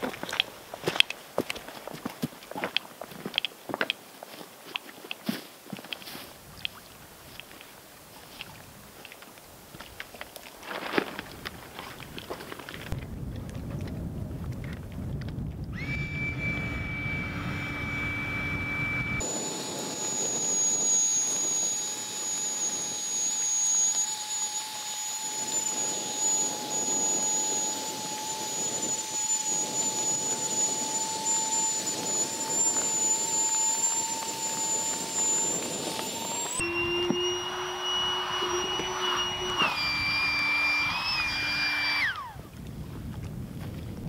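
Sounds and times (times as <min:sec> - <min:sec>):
electric air pump whining: 0:15.7 - 0:42.5.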